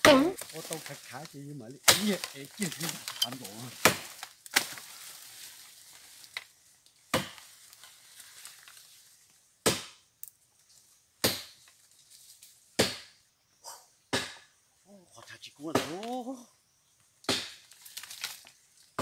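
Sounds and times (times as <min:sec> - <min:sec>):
footsteps crunching dry leaves: 0:00.0 - 0:09.4, 0:17.5 - 0:19.0.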